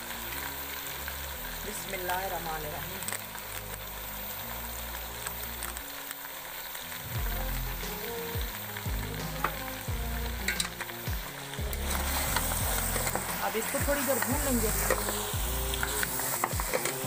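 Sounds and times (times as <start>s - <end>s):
meat sizzling in hot oil: 0.0s - 17.0s.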